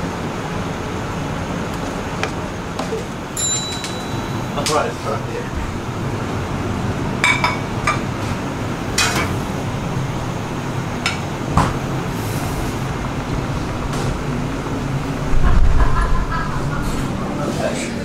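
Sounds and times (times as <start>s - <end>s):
kitchen ventilation hum: 0.0s - 18.0s
ceramic plates clinking: 7.2s - 8.1s.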